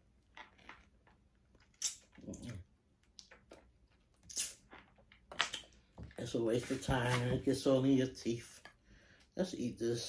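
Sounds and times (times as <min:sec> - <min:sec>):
person sucking and biting shell: 0:00.2 - 0:05.7.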